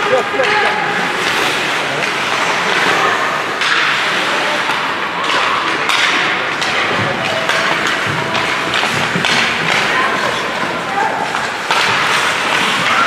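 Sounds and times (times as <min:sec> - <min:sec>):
skates scraping on ice: 0:00.0 - 0:13.0
sticks and puck knocking: 0:04.6 - 0:13.0.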